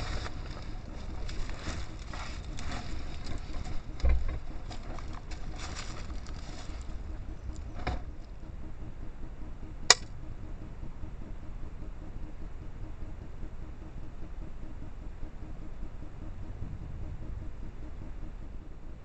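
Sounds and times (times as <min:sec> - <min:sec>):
dull low thump: 0:00.0 - 0:08.3
faint rustling: 0:00.0 - 0:08.4
sharp click: 0:09.9 - 0:10.1.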